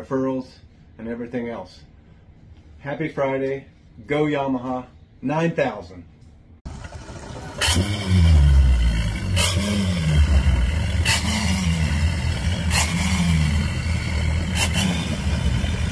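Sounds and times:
engine throttle bursts: 6.7 - 15.9
outboard motors rumbling: 6.7 - 15.9.

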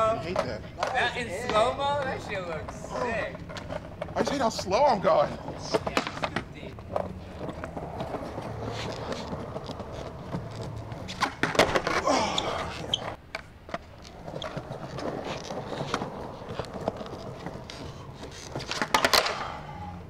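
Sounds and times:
skateboard wheels rolling on stone: 0.0 - 20.0
skateboard pop and clatter: 5.6 - 12.0, 13.2 - 19.6.

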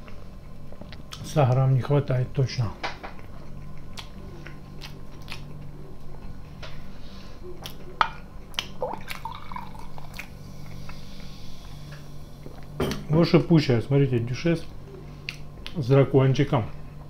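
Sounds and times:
chewing: 0.0 - 1.7, 3.0 - 6.6, 7.4 - 12.8, 14.6 - 15.8
low steady hum: 0.0 - 17.0
soda pouring into a glass: 9.0 - 10.2.

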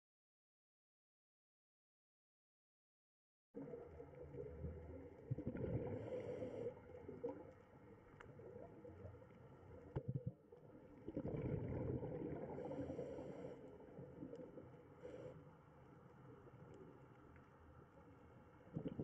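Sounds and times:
muffled underwater gurgling: 3.6 - 15.3.

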